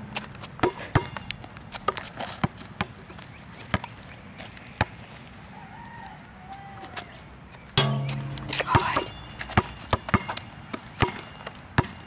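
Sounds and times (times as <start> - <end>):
basketball bouncing on asphalt: 0.2 - 3.0, 3.7 - 5.2, 7.8 - 12.0.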